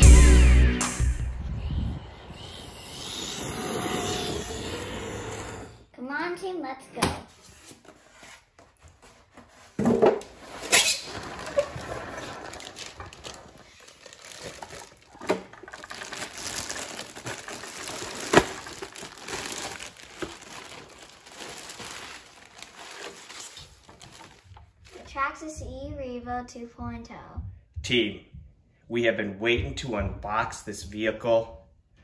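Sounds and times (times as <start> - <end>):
packaging crinkling: 10.4 - 25.1.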